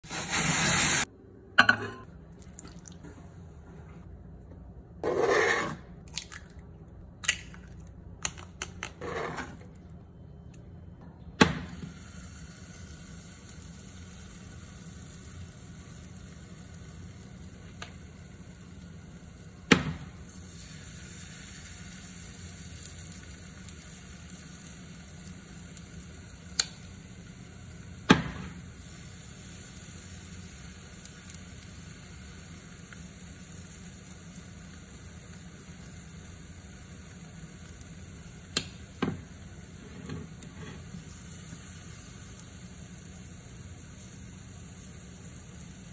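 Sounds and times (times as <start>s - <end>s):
bowls and utensils clinking: 1.6s - 2.1s
liquid pouring: 2.3s - 3.1s.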